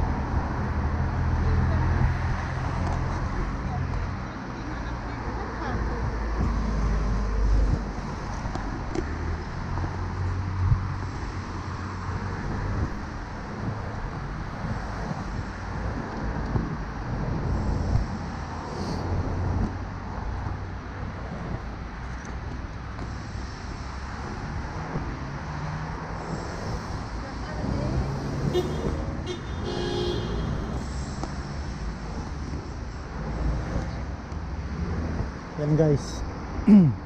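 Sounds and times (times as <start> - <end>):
cars driving past: 0.0 - 37.0.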